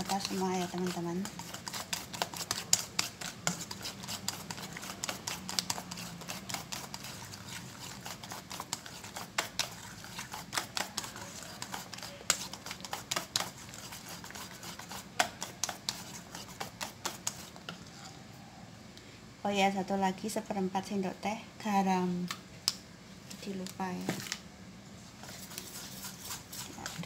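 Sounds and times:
batter slapping wetly: 0.0 - 17.7.

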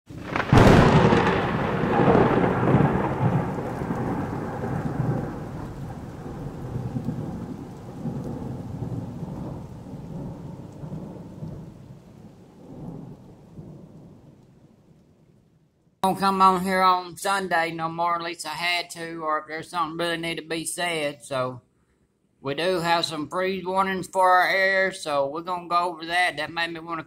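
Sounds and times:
thunder rumbling: 0.1 - 21.4
steady rain: 0.1 - 21.6, 22.5 - 27.0.

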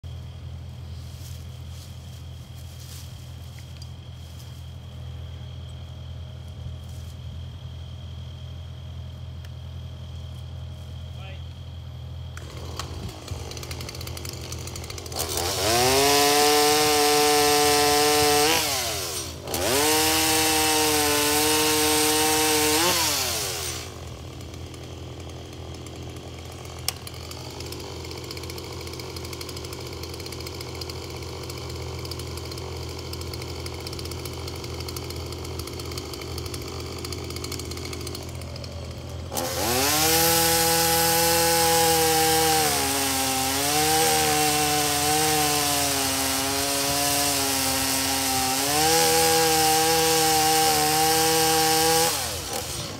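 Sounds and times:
excavator engine running: 0.0 - 16.0, 23.1 - 41.1
chainsaw cutting wood: 12.2 - 52.9.

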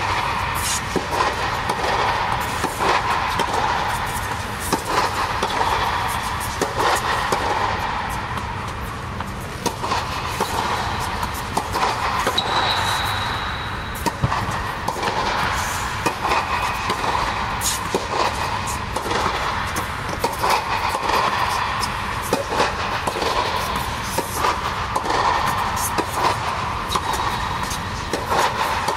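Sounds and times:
balls bouncing on a court: 0.0 - 28.9
steady background hiss: 0.0 - 28.9
tennis balls struck by rackets: 0.0 - 28.9.

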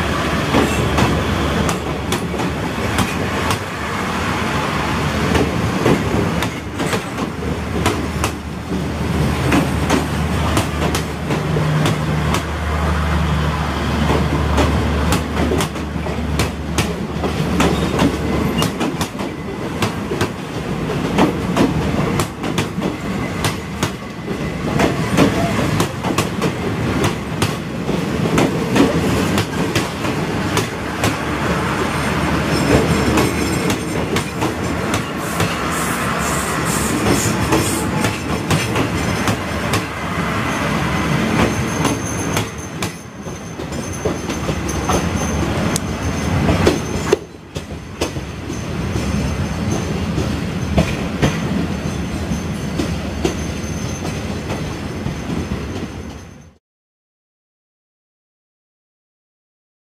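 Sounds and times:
train wheels clattering over rail joints: 5.2 - 12.5, 14.0 - 35.8, 36.8 - 40.0, 41.2 - 56.3.

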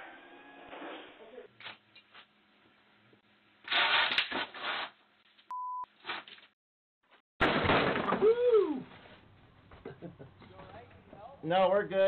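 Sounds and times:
censor bleep: 5.5 - 5.9.

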